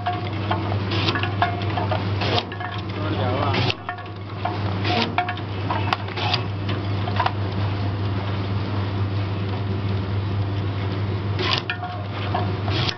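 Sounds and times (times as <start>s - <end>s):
cane cutting machine clatter: 0.0s - 6.5s, 11.4s - 12.9s.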